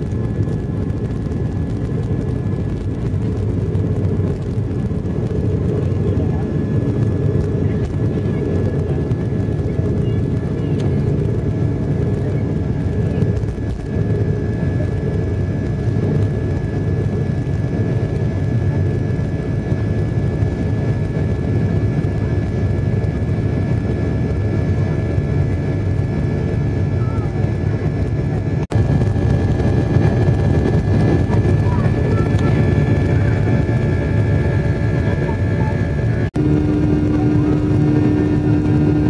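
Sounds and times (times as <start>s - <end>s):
jet engines rumbling: 0.0s - 39.0s
thin engine whines: 20.6s - 39.0s.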